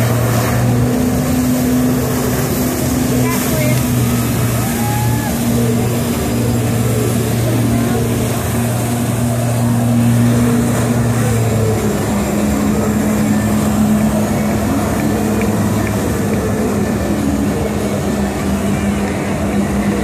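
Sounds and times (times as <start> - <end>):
jet-ski engine running: 0.0 - 20.0
water jets spraying: 0.0 - 20.0.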